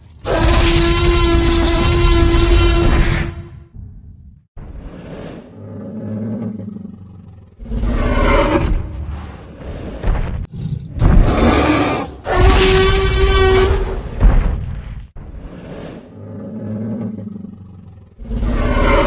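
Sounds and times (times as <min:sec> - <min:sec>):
dinosaur growl and roars: 0:00.0 - 0:03.6, 0:04.6 - 0:14.2, 0:15.2 - 0:19.0
deep thump: 0:13.9 - 0:15.2.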